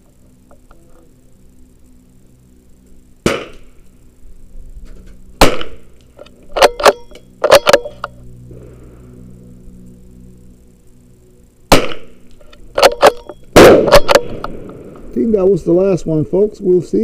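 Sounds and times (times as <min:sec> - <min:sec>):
rifle shots with echo: 0:03.2 - 0:03.7, 0:05.4 - 0:05.9, 0:11.7 - 0:12.2, 0:12.8 - 0:15.1.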